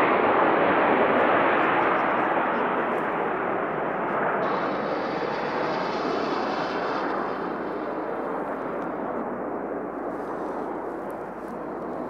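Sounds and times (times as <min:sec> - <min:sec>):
fighter jet rumble: 0:03.1 - 0:12.0
faint high whine: 0:03.3 - 0:12.0.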